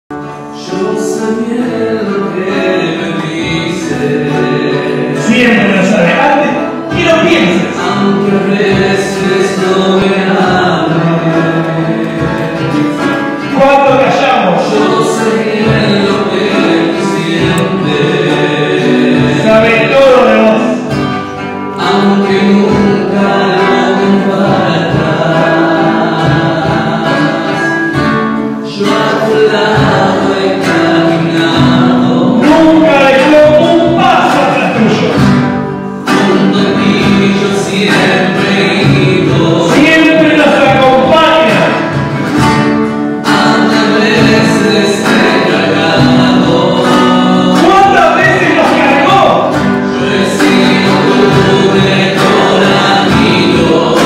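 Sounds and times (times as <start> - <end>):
instrumental accompaniment: 0.1 - 54.0
voices singing worship song: 0.1 - 54.0.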